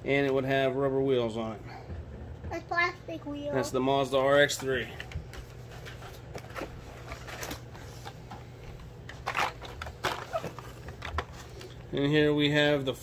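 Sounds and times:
plastic and card rustling: 4.5s - 12.0s.

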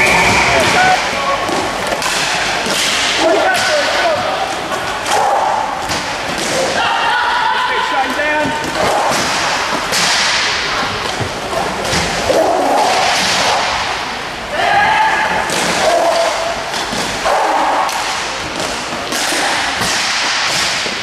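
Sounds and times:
people shouting: 0.0s - 1.5s, 5.0s - 5.8s, 6.4s - 10.3s, 12.2s - 13.9s, 14.5s - 16.6s, 17.2s - 18.4s
hockey sticks and puck clacking: 0.0s - 7.0s, 7.7s - 14.0s, 14.8s - 21.0s.

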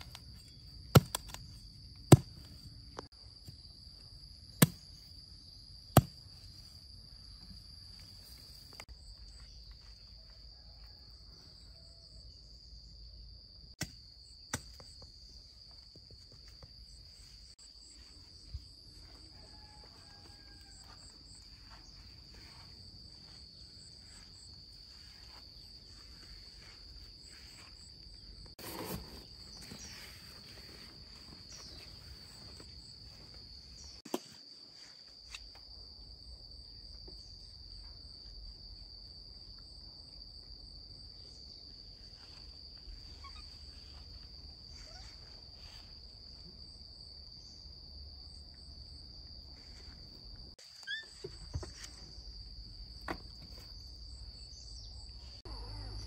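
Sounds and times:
insects trilling: 14.1s - 56.0s.

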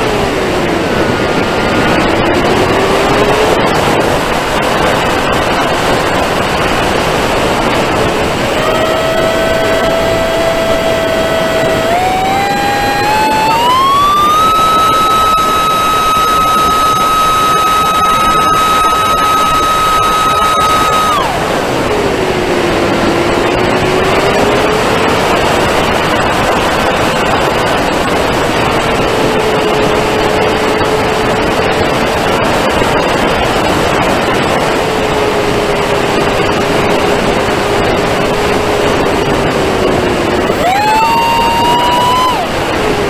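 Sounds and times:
wind rush: 0.0s - 43.0s
electric motor whine: 7.8s - 25.3s.

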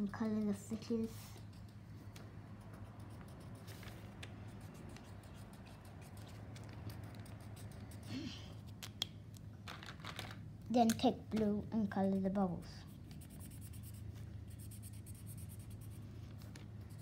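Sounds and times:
low steady hum: 0.0s - 17.0s
marker scratching on paper: 0.8s - 8.8s, 12.8s - 17.0s.

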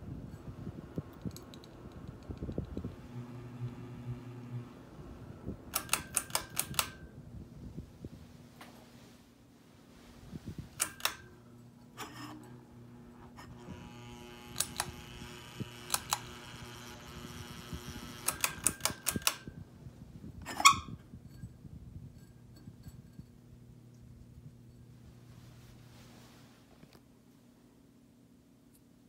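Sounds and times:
ceiling fan motor buzzing: 0.0s - 28.8s
higher buzzing: 2.6s - 5.7s.

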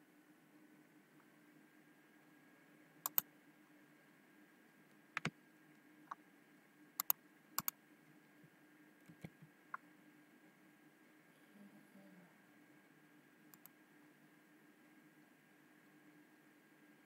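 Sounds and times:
faint steady hum: 0.0s - 17.0s
computer mouse button clicks: 3.0s - 3.2s, 7.0s - 7.7s.

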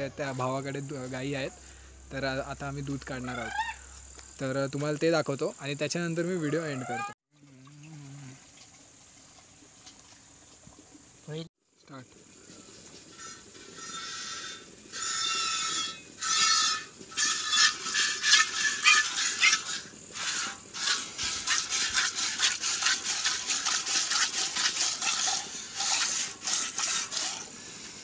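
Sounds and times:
milk squirting into a steel pail: 14.9s - 27.6s.

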